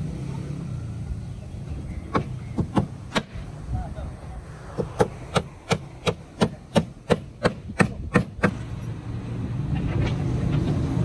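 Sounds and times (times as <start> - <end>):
hammer striking nails into wood: 2.1 - 3.4, 4.8 - 8.6.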